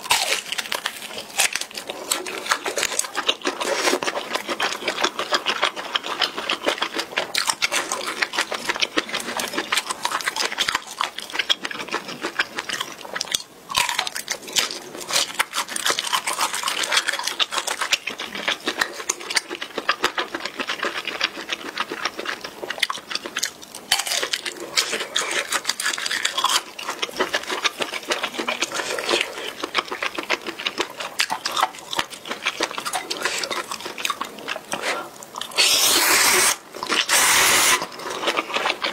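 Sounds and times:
chewing noodles: 0.0 - 38.9.

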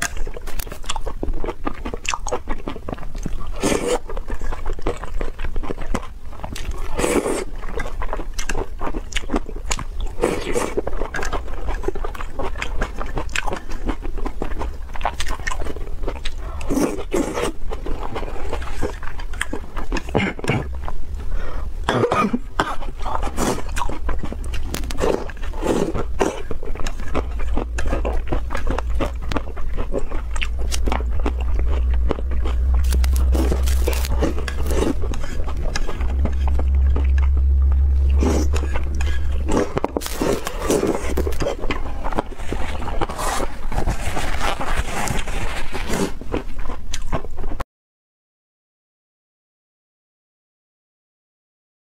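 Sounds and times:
chewing: 0.0 - 21.8, 22.6 - 47.6
low steady hum: 0.0 - 46.6.

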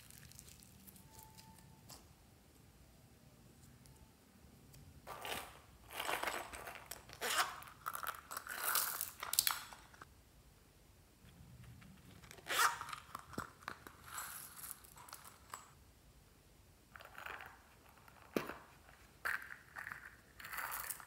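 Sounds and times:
zipper zip: 7.2 - 7.6, 12.4 - 13.0.

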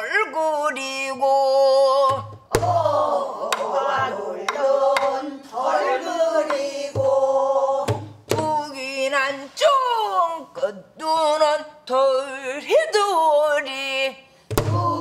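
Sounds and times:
barrel drum thumps: 2.1 - 5.2, 6.4 - 8.6.

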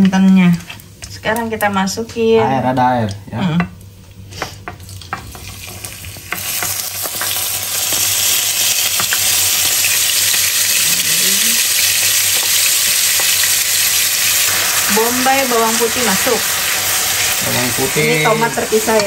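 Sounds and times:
spices sizzling in hot oil: 3.8 - 19.0.

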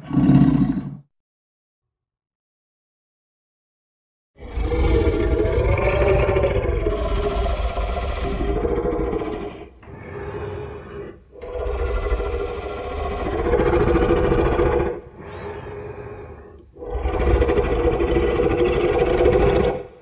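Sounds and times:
deep rough roars: 4.4 - 20.0.

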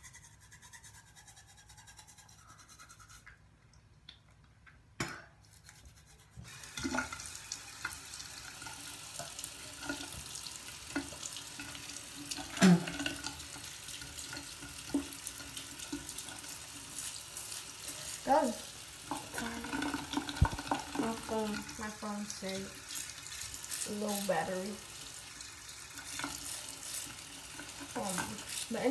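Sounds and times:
sink tap running: 6.4 - 28.9
knocks and clatters at basin: 19.1 - 21.9.

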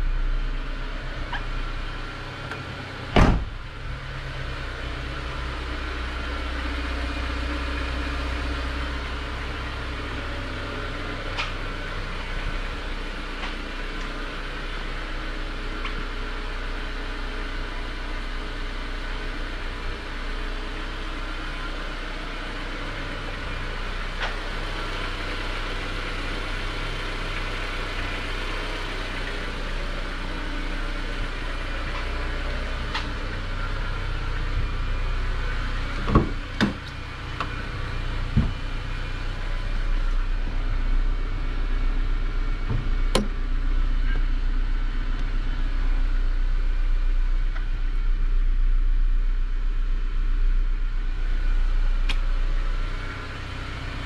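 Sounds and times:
steady low hum: 0.0 - 54.0
car door shutting: 2.5 - 3.8, 35.9 - 37.6, 42.7 - 43.4.

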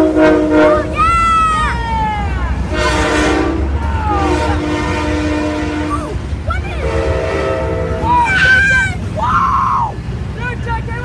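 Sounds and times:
locomotive air horn chord: 0.0 - 1.0, 2.6 - 6.2, 6.8 - 8.1
freight train rumbling past: 0.0 - 11.0.

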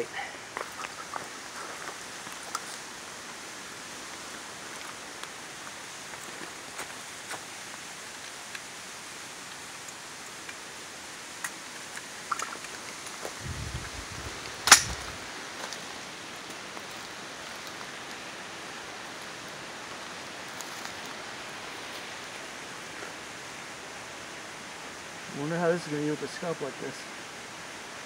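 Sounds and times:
steady outdoor hiss: 0.0 - 28.0
sharp metallic clack: 14.6 - 15.0.

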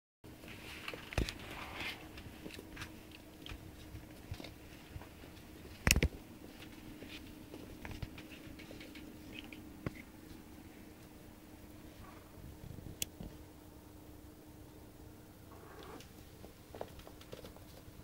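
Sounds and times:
puppy paws on wooden floor: 2.2 - 10.4, 16.1 - 18.0.

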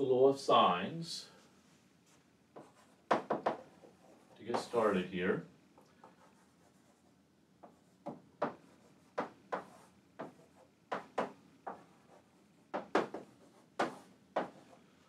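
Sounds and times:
chalk tapping and scratching on board: 2.6 - 4.8, 7.6 - 14.8.

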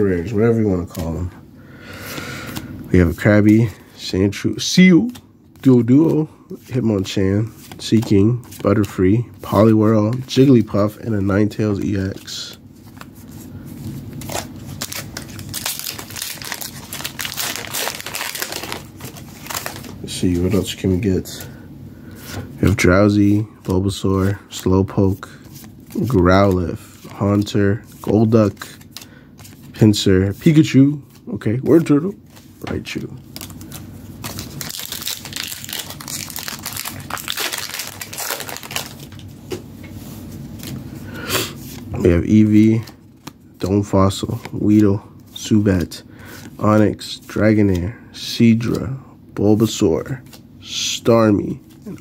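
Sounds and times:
foil wrapper crinkling: 14.2 - 20.2, 33.3 - 39.3.

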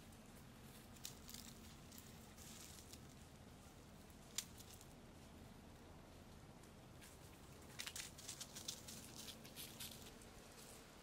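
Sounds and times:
leaves and twigs rustling: 0.0 - 11.0
stem snapping: 4.3 - 4.9.

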